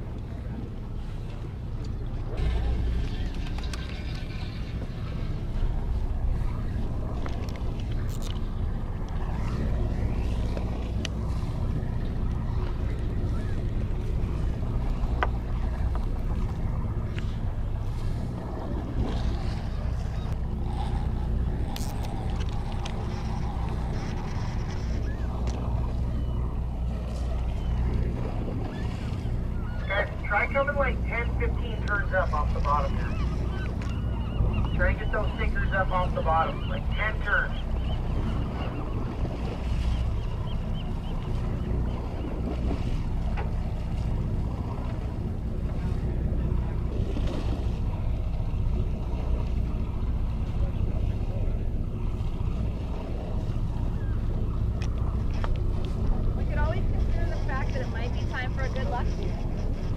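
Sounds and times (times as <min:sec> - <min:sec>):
boat engine humming: 0:00.0 - 0:59.9
water washing along hull: 0:00.0 - 0:59.9
wind buffeting microphone: 0:00.0 - 0:59.9
faint clicks: 0:10.5 - 0:11.2, 0:54.7 - 0:56.1.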